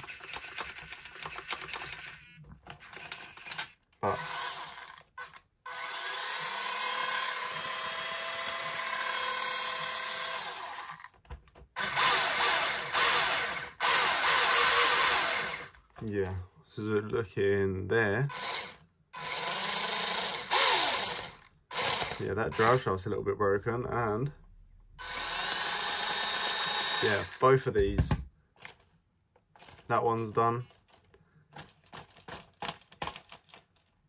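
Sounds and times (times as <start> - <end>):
electric motor whirring: 3.1 - 11.1, 11.8 - 15.8, 18.3 - 22.8, 25.0 - 27.4.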